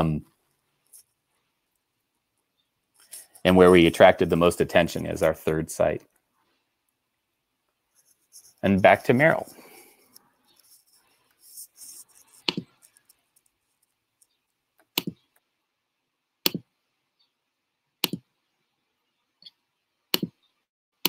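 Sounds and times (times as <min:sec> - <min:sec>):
mouse button clicking: 0:15.0 - 0:15.2.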